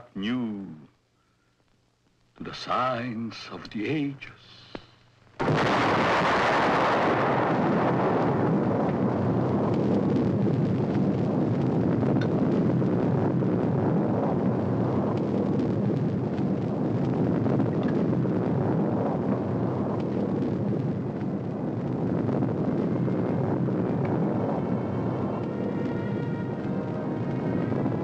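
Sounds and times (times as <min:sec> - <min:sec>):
loud rushing rumble: 0:05.5 - 0:28.0
faint music tones: 0:22.0 - 0:28.0.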